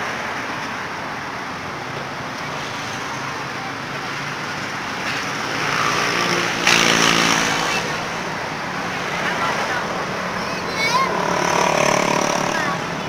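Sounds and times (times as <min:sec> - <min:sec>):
road traffic noise: 0:00.0 - 0:13.0
vehicle passing: 0:05.2 - 0:13.0.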